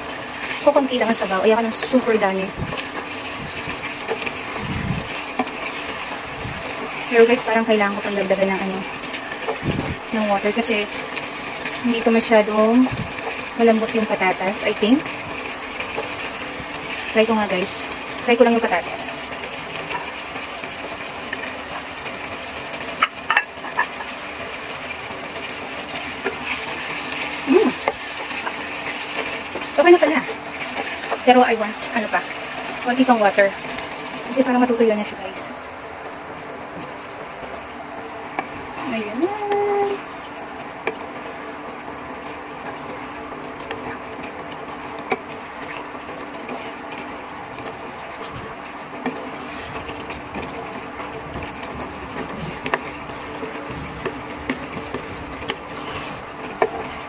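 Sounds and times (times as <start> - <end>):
stew sizzling in a pan: 0.0 - 57.0
wooden spatula stirring stew: 0.0 - 57.0
utensil clicking on pan: 22.9 - 24.1.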